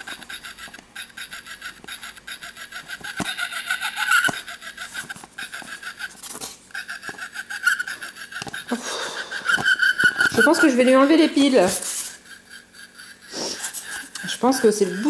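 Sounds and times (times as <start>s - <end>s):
rapidly pulsing tone: 13.7s - 15.0s
stuttering electronic voice loop: 14.1s - 15.0s.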